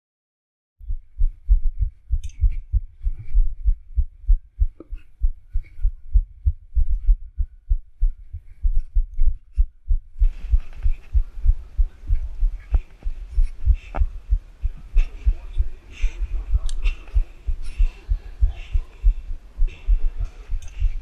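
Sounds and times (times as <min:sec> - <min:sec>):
heartbeat thumps: 0:00.8 - 0:21.0
room noise hiss: 0:10.2 - 0:21.0.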